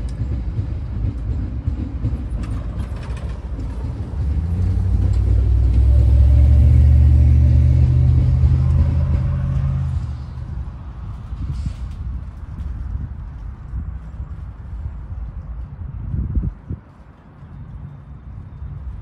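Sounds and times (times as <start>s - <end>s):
pickup truck engine driving past: 4.2s - 10.1s.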